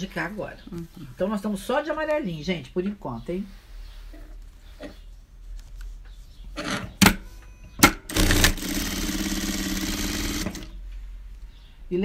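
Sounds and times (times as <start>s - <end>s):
sewing machine stitching: 7.8s - 10.7s.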